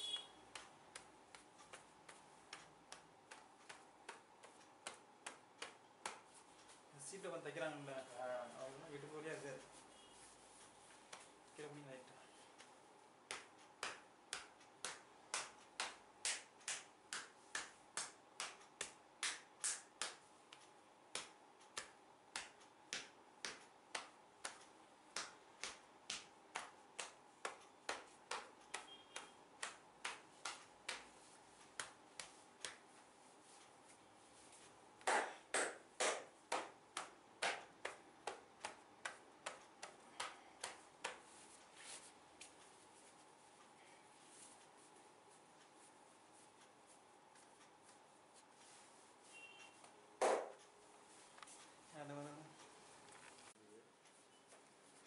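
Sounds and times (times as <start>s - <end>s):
hands slapping a back: 0.1s - 6.8s, 11.1s - 11.4s, 12.6s - 33.7s, 34.5s - 43.2s, 49.7s - 50.7s.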